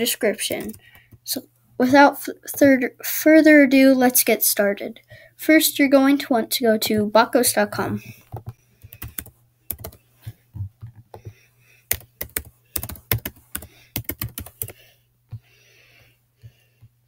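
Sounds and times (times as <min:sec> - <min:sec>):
typing on keyboard: 0:08.1 - 0:10.0, 0:10.8 - 0:14.8.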